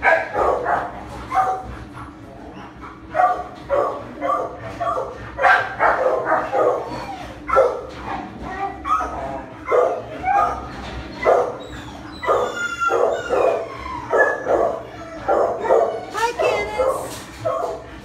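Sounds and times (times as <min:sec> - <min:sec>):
dog barking: 0:00.0 - 0:01.7, 0:03.1 - 0:07.9, 0:08.9 - 0:10.6, 0:11.2 - 0:11.6, 0:12.2 - 0:17.8
dog yelping: 0:03.2 - 0:17.8.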